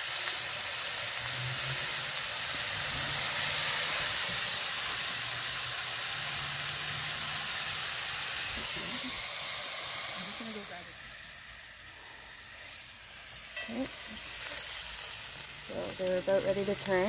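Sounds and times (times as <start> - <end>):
meat sizzling in oil: 0.0 - 17.0.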